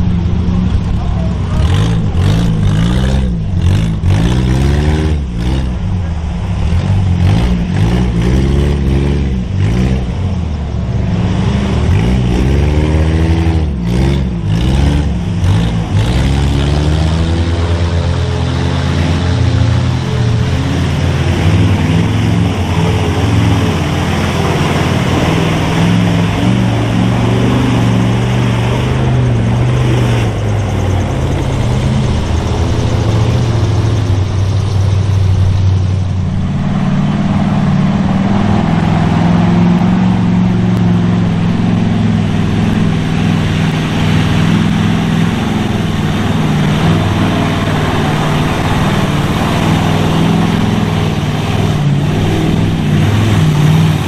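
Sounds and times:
trucks driving through mud: 0:00.0 - 0:54.0.

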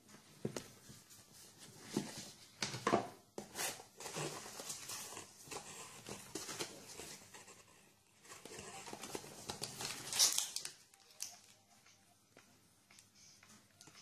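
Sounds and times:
cardboard rustling and crinkling: 0:03.4 - 0:11.0.

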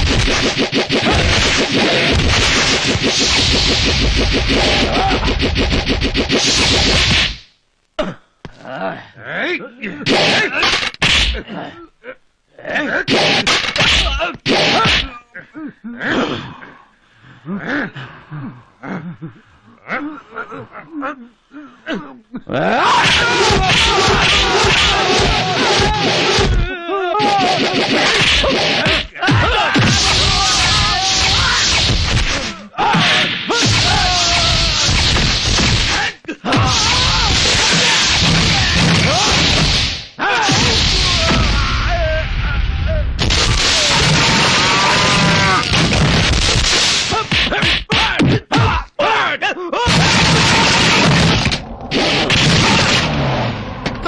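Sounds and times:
punch and kick impacts: 0:00.0 - 0:07.4, 0:23.1 - 0:41.6, 0:45.6 - 0:48.8, 0:49.9 - 0:53.1
men yelling and grunting: 0:22.0 - 0:35.0, 0:35.8 - 0:42.4, 0:43.5 - 0:45.8, 0:47.1 - 0:51.5.

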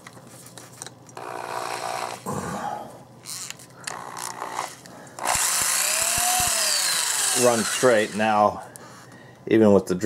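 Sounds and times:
drill chuck rasping: 0:01.2 - 0:02.2, 0:03.3 - 0:08.4.

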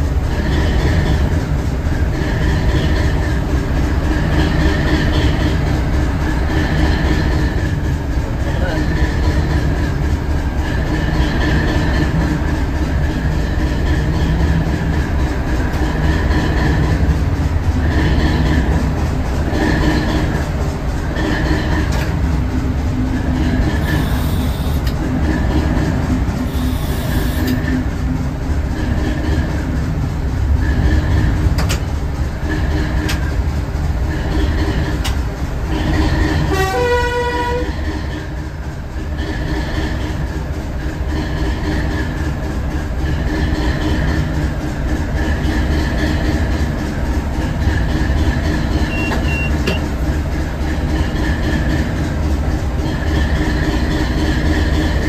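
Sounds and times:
wheels clicking over rail joints: 0:00.0 - 0:22.5, 0:31.1 - 0:36.4
diesel train engine rumbling: 0:00.0 - 0:55.0
train horn blast: 0:36.4 - 0:37.8.

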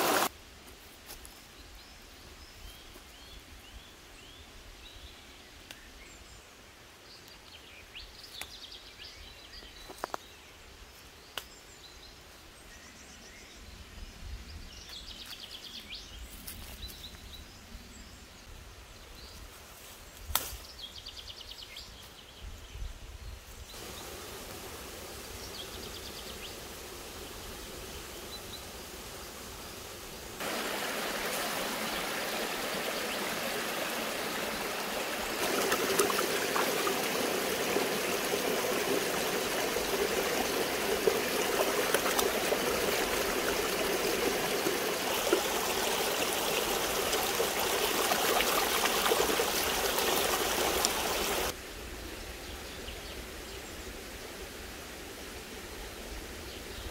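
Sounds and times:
stream rushing over rocks: 0:00.0 - 0:00.3, 0:30.2 - 0:51.6
hands splashing leaves in water: 0:35.3 - 0:40.2.

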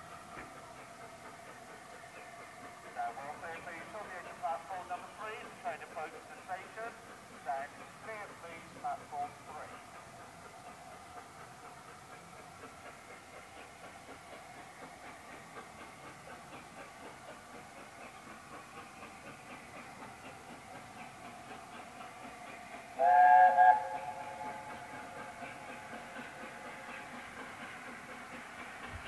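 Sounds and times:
locomotive steam hissing: 0:00.0 - 0:29.0
steam whistle: 0:23.0 - 0:24.7.

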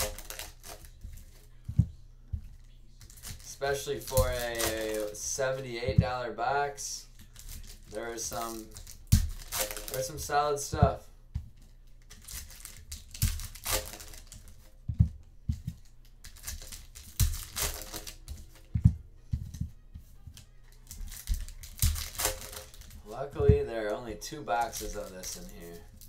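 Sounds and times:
wrappers tearing and crinkling: 0:00.0 - 0:01.4, 0:03.0 - 0:05.2, 0:07.2 - 0:10.5, 0:12.0 - 0:14.6, 0:16.2 - 0:18.6, 0:20.6 - 0:23.1, 0:24.5 - 0:26.0.

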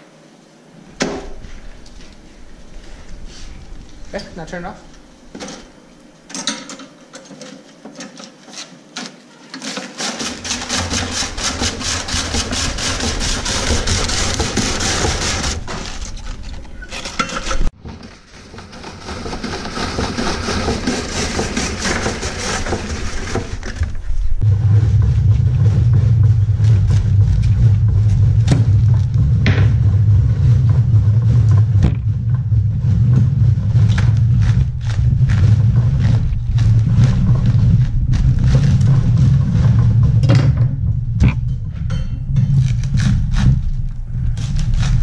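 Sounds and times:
loud low hum: 0:00.7 - 0:06.3, 0:23.2 - 0:45.0
electric shredder grinding cabbage: 0:09.6 - 0:16.4, 0:18.2 - 0:23.6.

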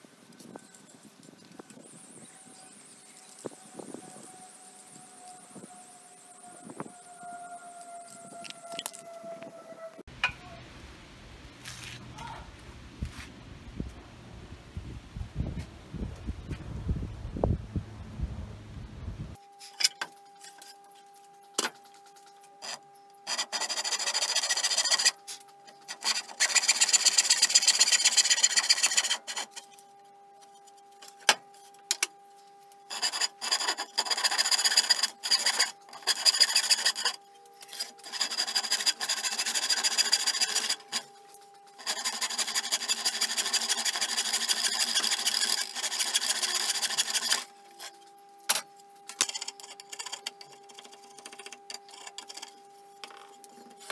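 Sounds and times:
hand saw cutting wood: 0:22.6 - 0:29.6, 0:32.9 - 0:41.1, 0:41.8 - 0:47.9.

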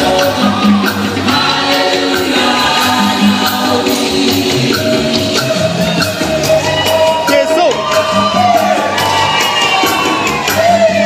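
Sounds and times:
choir backing voices: 0:00.0 - 0:07.1
gospel band playing: 0:00.0 - 0:11.0.

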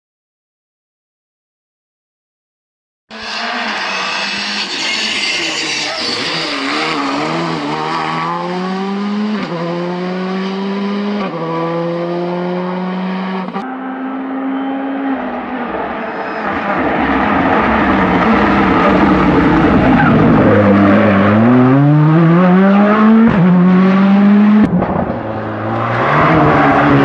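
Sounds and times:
approaching car engine and tyres: 0:03.1 - 0:27.0
rally car accelerating with upshifts: 0:03.1 - 0:27.0.

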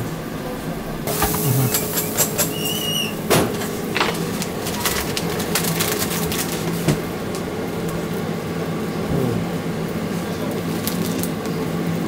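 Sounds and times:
brief high squeak: 0:02.4 - 0:03.2.

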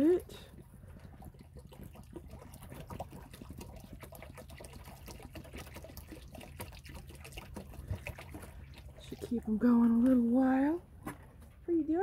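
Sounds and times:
water trickling and dripping: 0:00.0 - 0:10.8.

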